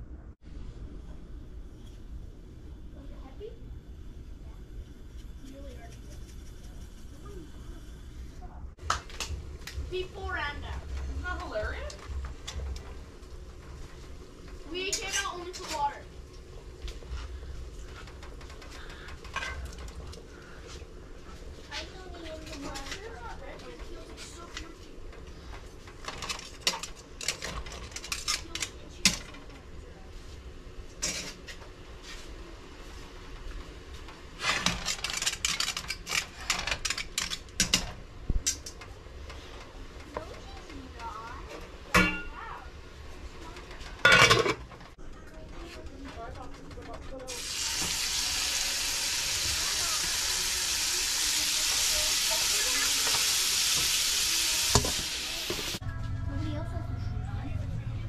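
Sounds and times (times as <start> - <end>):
steaks sizzling in a frying pan: 47.3 - 55.8.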